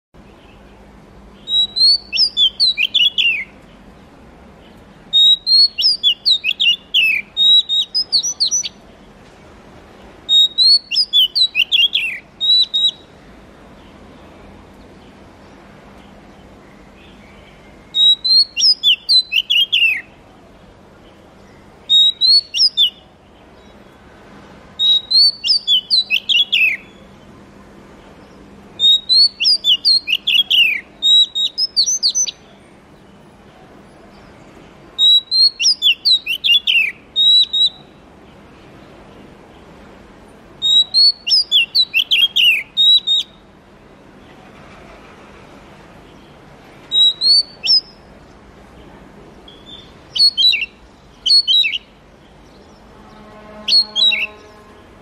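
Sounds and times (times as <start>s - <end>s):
bird singing whistled phrases: 1.4s - 3.6s, 5.1s - 8.8s, 10.3s - 13.1s, 17.9s - 20.1s, 21.8s - 23.1s, 24.8s - 27.0s, 28.8s - 32.4s, 35.0s - 38.0s, 40.6s - 43.4s, 46.9s - 48.0s, 49.5s - 52.0s, 53.2s - 54.6s.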